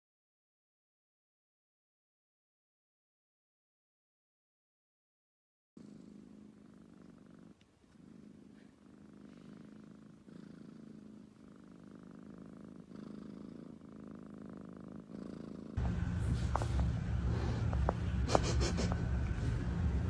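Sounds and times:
cat purring: 5.8 - 20.0.

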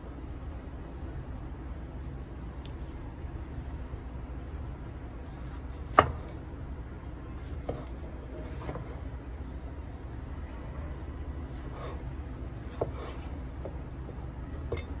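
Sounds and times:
knife slicing tomato: 5.2 - 6.4, 7.3 - 9.0, 11.4 - 13.4.

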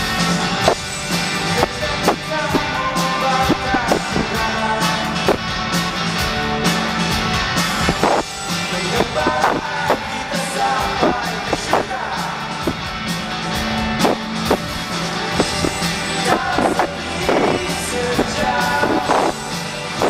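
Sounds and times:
pop-rock band playing: 0.0 - 20.0
man singing: 1.1 - 5.4, 8.0 - 12.8, 15.4 - 20.0.

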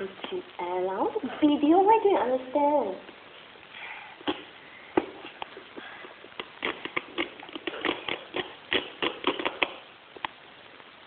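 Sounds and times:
tape peeling crackles: 5.2 - 10.4.

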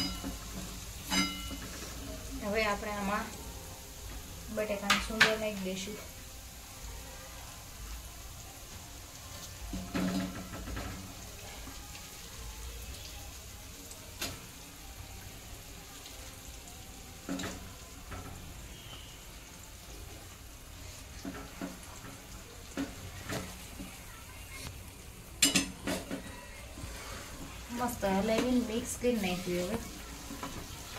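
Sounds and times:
faint sizzle in pan: 0.0 - 30.9
spoon scraping and knocking pan: 9.7 - 11.1.

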